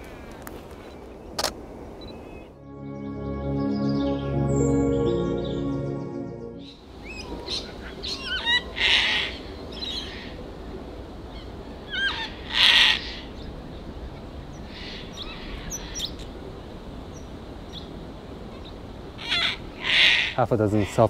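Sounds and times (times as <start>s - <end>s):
cockatoo screeching: 19.2s - 21.0s.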